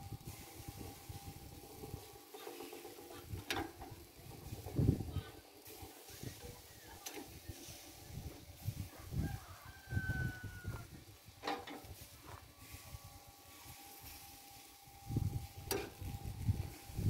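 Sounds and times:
rooster crowing: 0:08.9 - 0:11.0.

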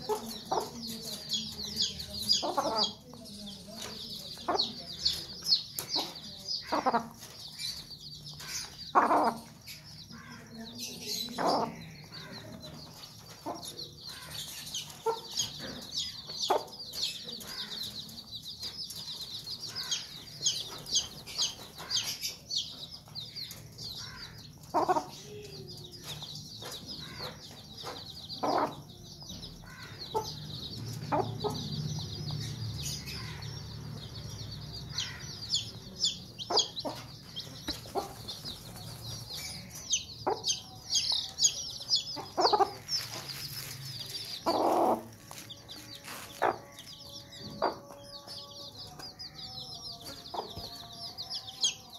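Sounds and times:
hen clucking: 0:00.0 - 0:03.1, 0:04.4 - 0:07.4, 0:08.4 - 0:09.6, 0:11.2 - 0:12.6, 0:26.7 - 0:28.9, 0:34.9 - 0:38.8, 0:39.6 - 0:46.6
chicks peeping: 0:00.0 - 0:51.9.

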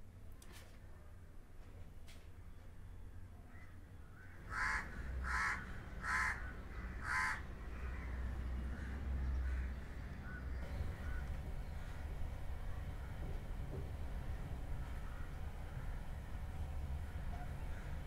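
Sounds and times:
low steady hum: 0:00.0 - 0:18.0
crow cawing: 0:04.5 - 0:10.4, 0:11.0 - 0:12.0.

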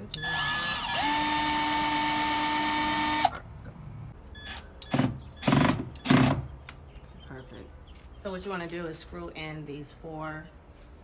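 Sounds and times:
cordless drill whining: 0:00.2 - 0:03.4.

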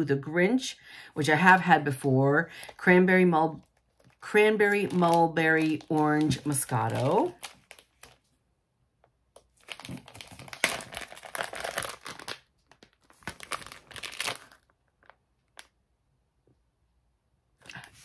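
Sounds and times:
plastic bag crinkling: 0:03.7 - 0:08.3, 0:09.4 - 0:15.7.

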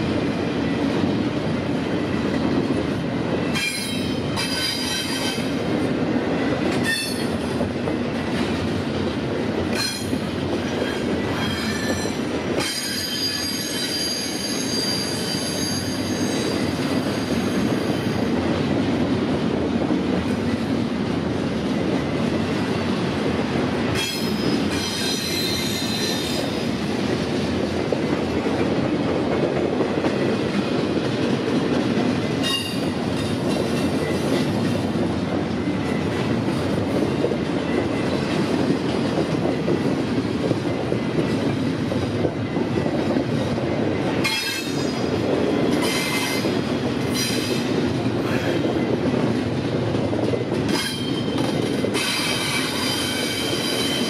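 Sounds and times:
freight train rumbling: 0:00.0 - 0:54.0
steel wheel squeal: 0:10.8 - 0:18.0, 0:24.0 - 0:26.6, 0:50.7 - 0:54.0.

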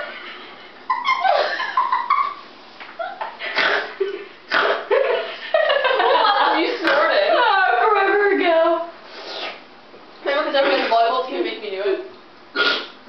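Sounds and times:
woman laughing hard: 0:00.9 - 0:02.4, 0:03.0 - 0:06.6.

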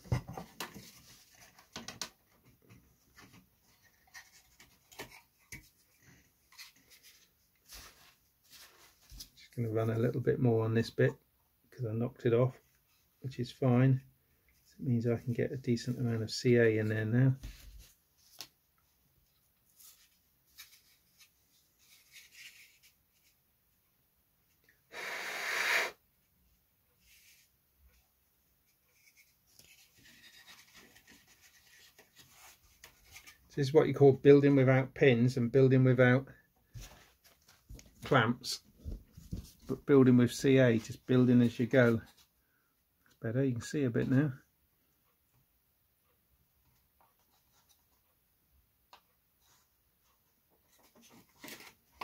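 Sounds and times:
soft rustle: 0:02.8 - 0:10.0, 0:14.5 - 0:23.4, 0:26.9 - 0:33.6.

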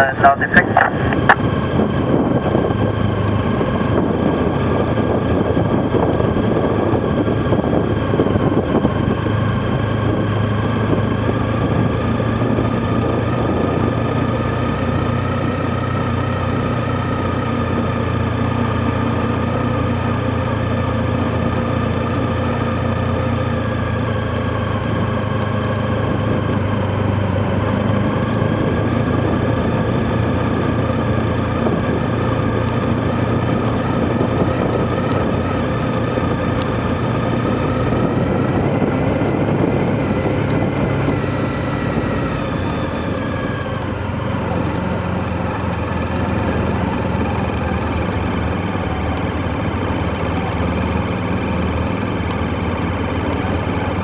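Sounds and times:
motorcycle engine running: 0:00.0 - 0:54.0
road noise over cobblestones: 0:00.0 - 0:54.0.

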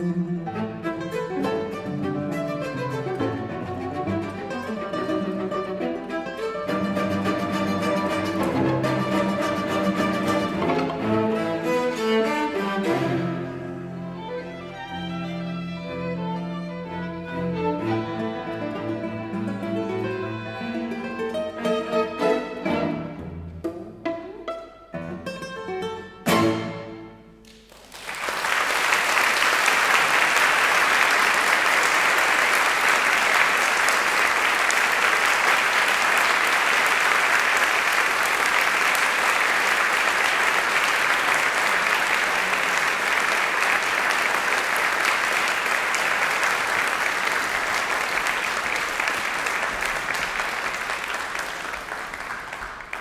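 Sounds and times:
guitar and string quartet: 0:00.0 - 0:27.6
audience applauding: 0:06.2 - 0:14.3, 0:27.4 - 0:53.0.

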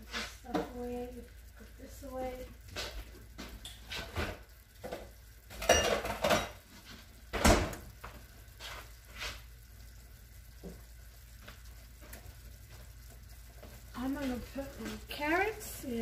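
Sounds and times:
kitchen containers and utensils clattering: 0:03.9 - 0:06.6.

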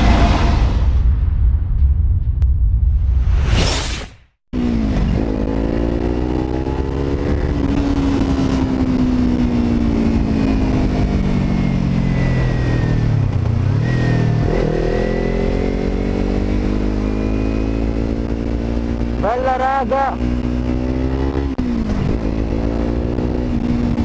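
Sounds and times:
motorcycle engine: 0:04.6 - 0:24.0
wind rumble on microphone: 0:04.8 - 0:14.5, 0:20.2 - 0:24.0.

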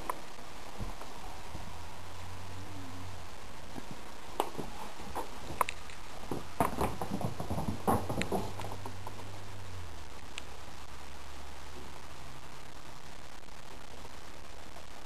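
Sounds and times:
cat paws thumping on floor: 0:04.4 - 0:09.2.

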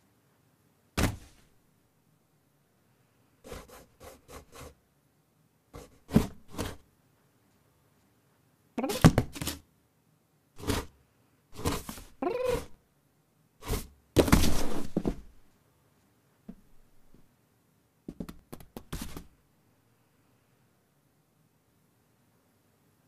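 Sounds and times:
cardboard box thumps and scrapes: 0:06.0 - 0:06.8, 0:11.6 - 0:12.7, 0:13.6 - 0:15.4.

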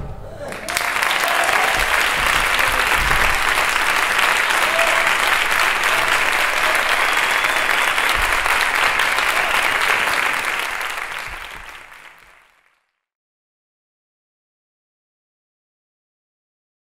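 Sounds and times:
audience applauding: 0:00.4 - 0:12.9.

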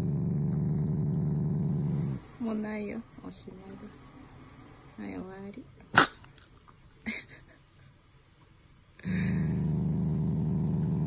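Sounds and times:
dog growling: 0:00.0 - 0:02.3, 0:09.0 - 0:11.0.

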